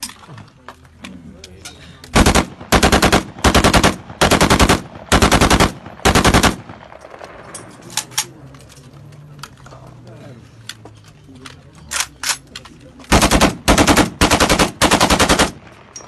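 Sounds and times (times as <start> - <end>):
automatic rifle bursts: 2.1 - 7.3, 13.1 - 15.8.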